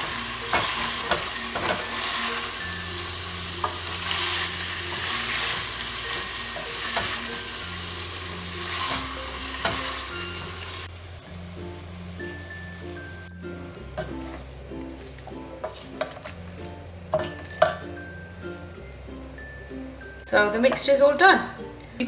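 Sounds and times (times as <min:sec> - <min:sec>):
light sizzle: 0:00.0 - 0:20.9
wooden spoon stirring in pot: 0:13.9 - 0:17.8.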